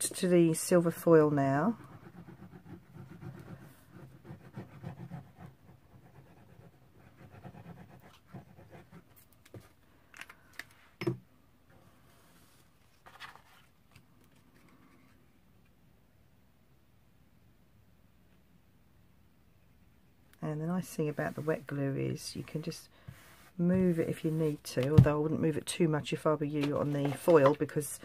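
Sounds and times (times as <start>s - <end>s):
paper rustling and scraping: 12.1s - 15.2s, 26.5s - 27.8s.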